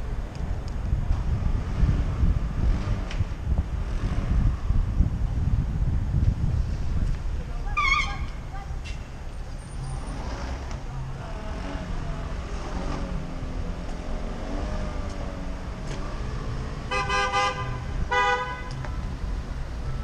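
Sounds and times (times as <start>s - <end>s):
wind on microphone: 0.0s - 9.0s
traffic rumble: 0.0s - 20.0s
vehicle horn toots: 16.9s - 18.8s.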